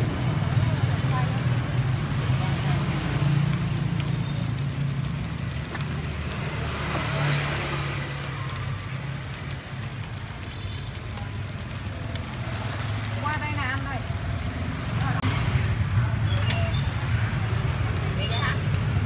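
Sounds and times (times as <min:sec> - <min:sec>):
hot oil sizzling: 0:00.0 - 0:19.0.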